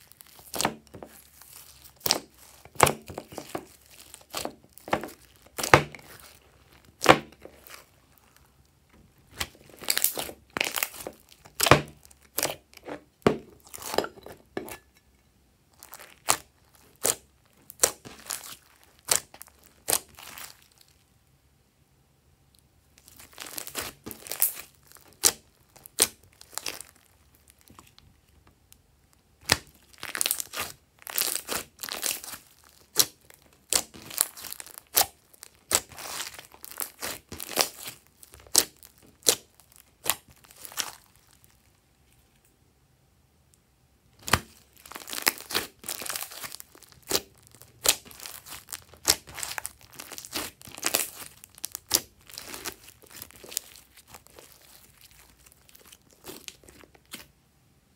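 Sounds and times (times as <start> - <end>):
slime squishing and popping: 0.0 - 14.0, 15.8 - 20.9, 23.0 - 28.0, 29.4 - 41.6, 44.2 - 57.3.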